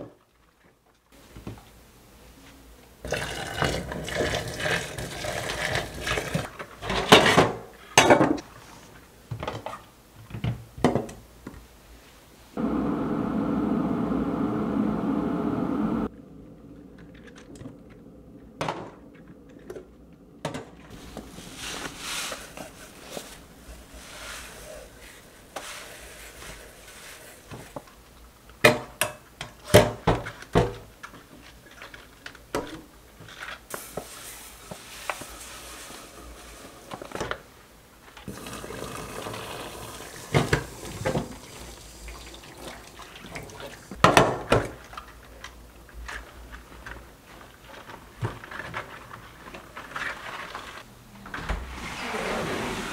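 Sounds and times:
water in sink: 3.0 - 7.3, 16.6 - 27.9, 38.1 - 45.4.

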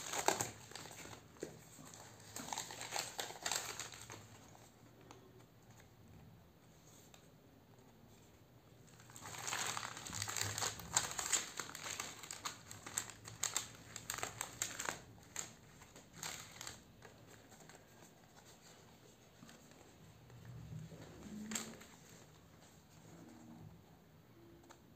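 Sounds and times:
plastic bag crinkling: 0.0 - 4.4, 8.9 - 18.5, 20.9 - 22.2.

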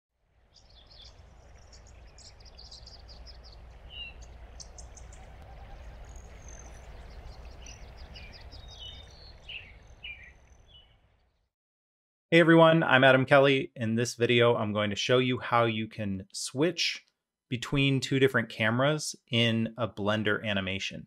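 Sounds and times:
birds chirping and trilling: 0.4 - 11.5
steady low rumble: 0.6 - 9.4
down-slurred bird calls: 0.6 - 11.0.

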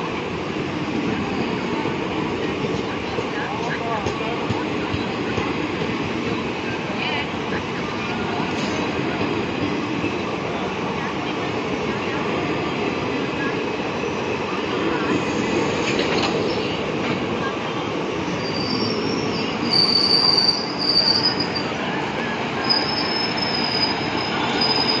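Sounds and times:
train coaches rumbling past: 0.0 - 25.0
train wheel squeals: 18.2 - 21.8, 22.6 - 25.0.

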